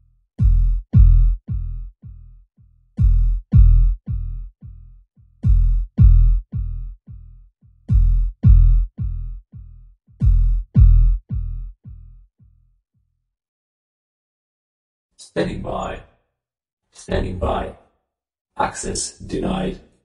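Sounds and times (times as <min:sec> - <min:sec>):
synthesized echoing thump and chime: 0:03.0 - 0:04.3, 0:10.2 - 0:12.0.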